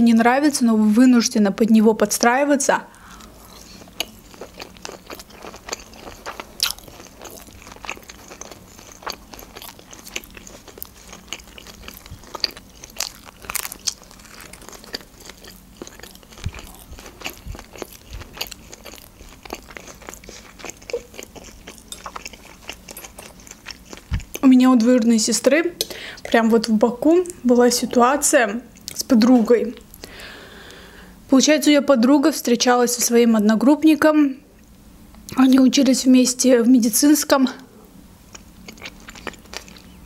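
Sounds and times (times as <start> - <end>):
chewing with clicks: 3.2 - 24.4, 38.3 - 40.0.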